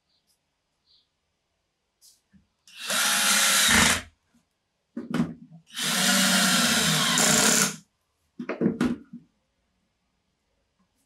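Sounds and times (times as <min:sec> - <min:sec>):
cordless drill driving a screw: 0:02.7 - 0:04.1, 0:05.7 - 0:07.8.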